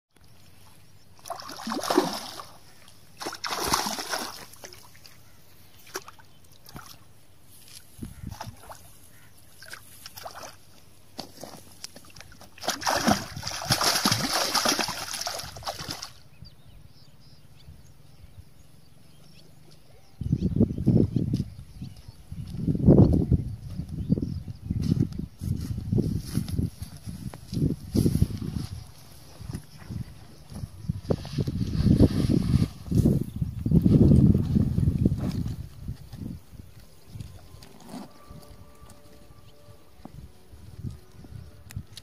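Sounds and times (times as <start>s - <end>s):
fish thrashing and splashing: 1.2s - 2.6s, 3.2s - 5.0s, 11.3s - 16.2s.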